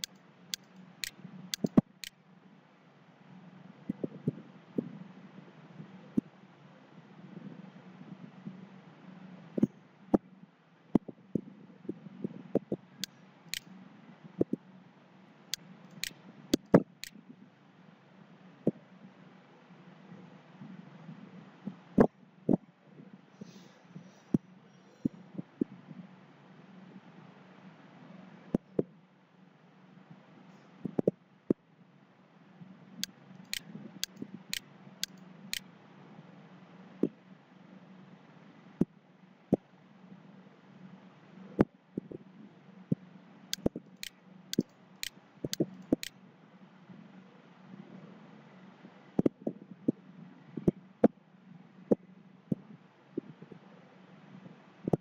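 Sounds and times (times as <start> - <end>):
mouse buttons clicking: 0.0 - 0.7, 15.9 - 16.8, 45.5 - 46.1
faint low hum: 0.0 - 55.0.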